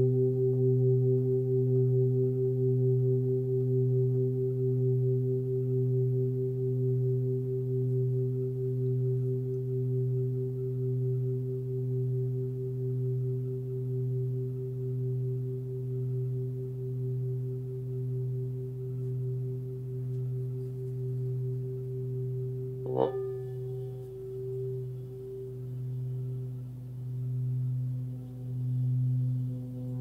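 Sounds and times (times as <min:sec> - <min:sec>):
singing bowl ringing: 0:00.0 - 0:30.0
mallet striking singing bowl: 0:22.8 - 0:24.1.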